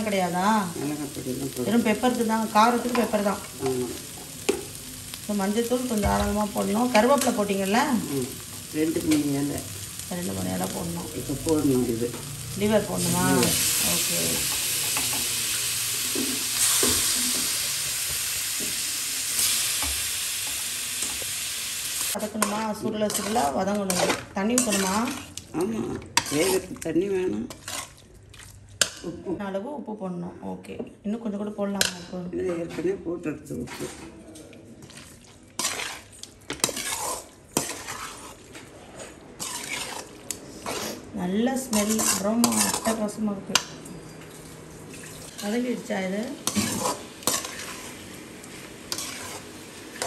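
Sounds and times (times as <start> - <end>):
liver sizzling in hot oil: 0.0 - 25.4, 45.3 - 50.0
spatula scraping metal pot: 22.4 - 25.4, 26.2 - 26.7, 27.5 - 28.0, 35.6 - 38.4, 39.4 - 41.1, 41.7 - 43.0, 48.9 - 49.4.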